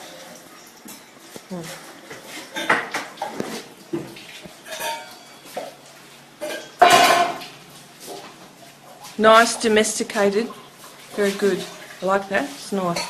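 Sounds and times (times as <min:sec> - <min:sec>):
metal pots and cups clattering: 0:02.2 - 0:03.6, 0:04.6 - 0:05.8, 0:06.4 - 0:07.5.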